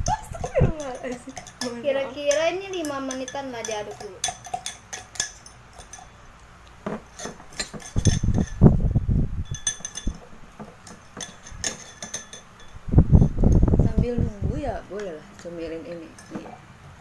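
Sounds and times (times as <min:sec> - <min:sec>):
spoons clinking against glass: 0:00.0 - 0:06.3, 0:06.9 - 0:08.7, 0:09.4 - 0:13.6, 0:14.9 - 0:16.6
dull low thumps: 0:12.9 - 0:14.8.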